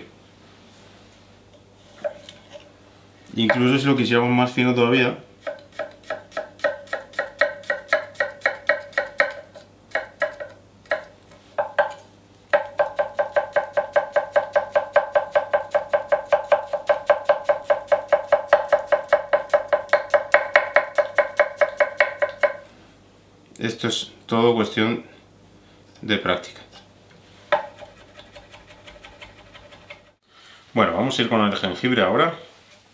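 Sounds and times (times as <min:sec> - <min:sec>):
knife chopping on wooden board: 0:05.4 - 0:22.6, 0:27.5 - 0:30.1.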